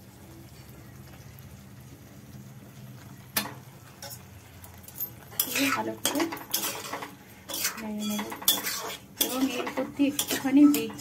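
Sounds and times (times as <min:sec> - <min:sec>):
curry simmering in a pan: 0:00.0 - 0:11.0
metal spatula clinking on pan: 0:04.8 - 0:11.0.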